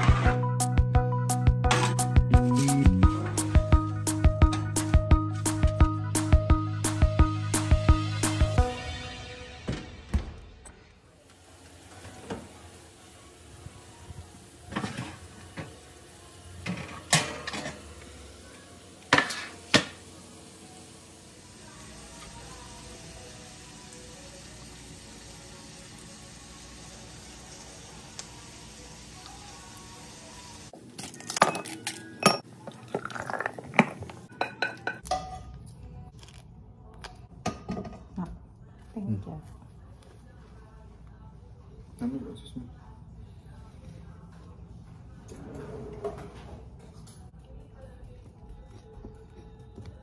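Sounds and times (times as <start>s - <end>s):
glassware and plates clinking: 31.4s - 35.5s
soft drink pouring into glass: 32.6s - 33.6s.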